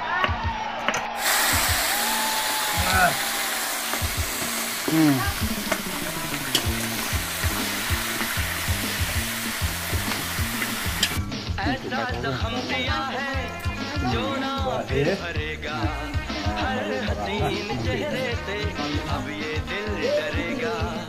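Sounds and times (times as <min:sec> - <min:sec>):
meat sizzling in a wok: 0:01.2 - 0:11.5
metal ladle stirring: 0:03.8 - 0:11.2
music with bass beat: 0:03.9 - 0:21.0.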